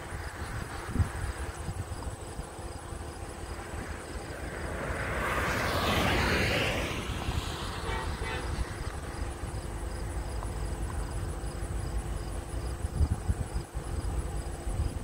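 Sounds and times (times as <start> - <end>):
car passing on highway: 0.0 - 12.9
distant horn: 7.4 - 9.4.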